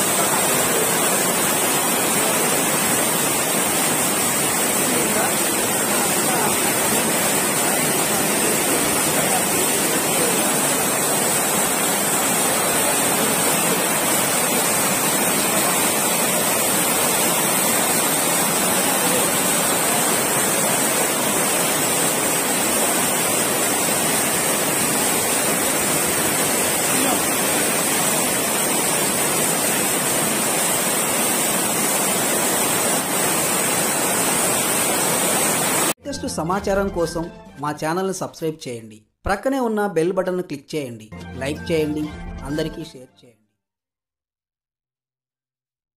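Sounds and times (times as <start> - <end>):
water rushing over rocks: 0.0 - 36.0.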